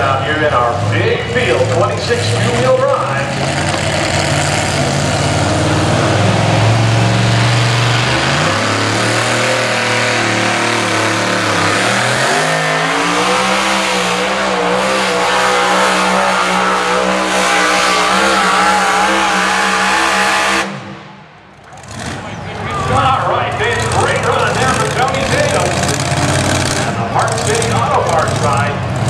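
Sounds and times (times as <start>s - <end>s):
truck engine at full throttle: 0.0s - 29.0s.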